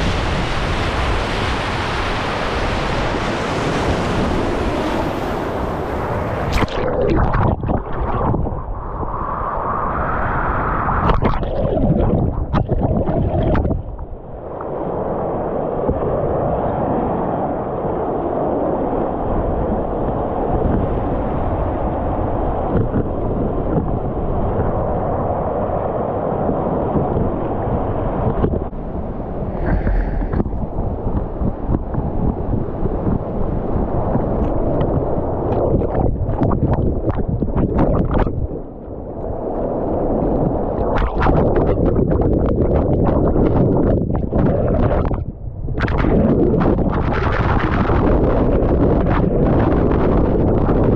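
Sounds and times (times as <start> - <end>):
river rushing over dam: 0.0 - 6.9.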